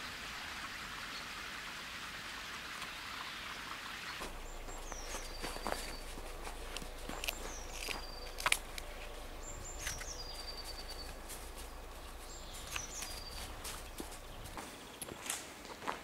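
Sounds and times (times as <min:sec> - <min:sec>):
dog crunching in snow: 0:04.2 - 0:14.6
songbird whistling calls: 0:06.8 - 0:11.2.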